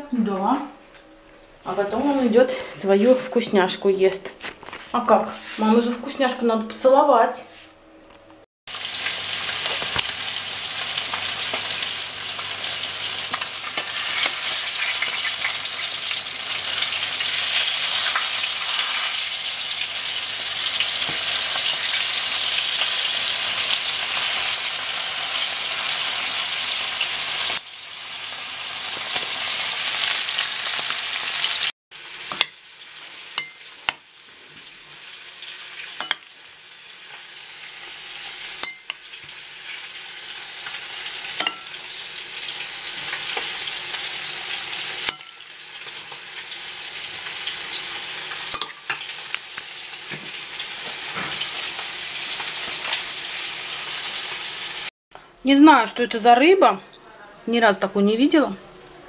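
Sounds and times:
fish sizzling in hot oil: 8.7s - 54.9s.

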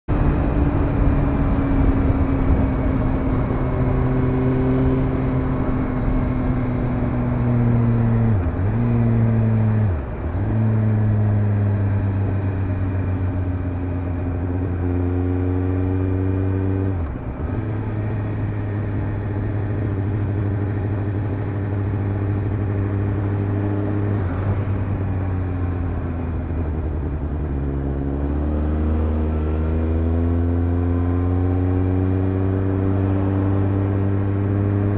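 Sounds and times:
motorcycle engine running: 0.1s - 34.9s.

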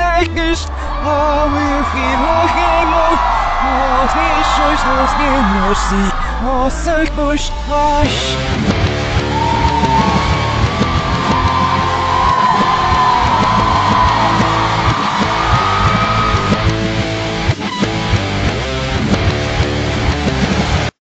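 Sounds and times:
electric guitar sliding melody: 8.1s - 20.9s
live rock band: 8.3s - 20.9s.

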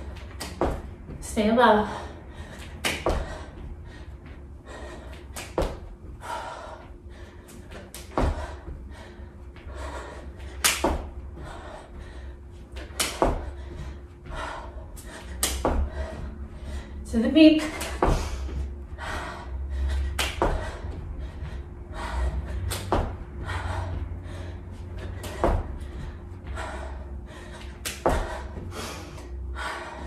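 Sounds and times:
person breathing: 1.8s - 17.1s, 18.1s - 30.0s
feet thudding on rug-covered floor: 2.8s - 6.2s, 20.0s - 29.0s.

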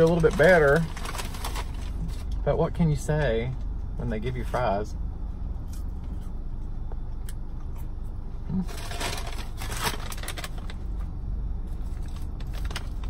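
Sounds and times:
paper bag rustling: 0.0s - 2.4s, 8.7s - 10.9s, 11.7s - 13.0s
steady low hum: 0.0s - 13.0s.

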